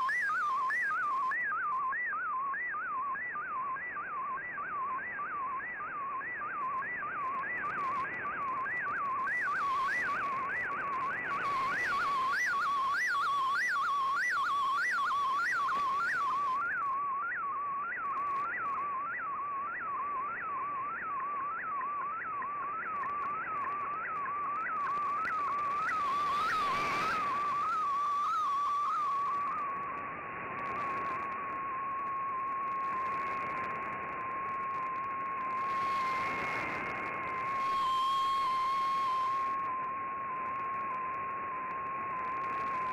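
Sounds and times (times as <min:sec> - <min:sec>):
whistling signal tone with blips: 0:00.0 - 0:42.9
static hiss: 0:35.5 - 0:39.5.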